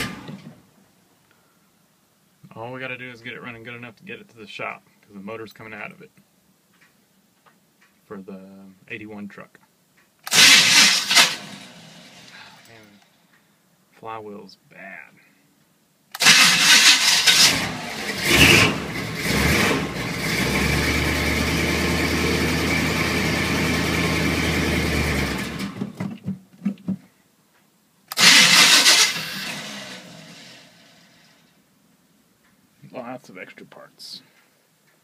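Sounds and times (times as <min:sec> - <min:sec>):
starter motor cranking: 0:10.3 - 0:11.7, 0:16.2 - 0:18.6, 0:28.1 - 0:30.1.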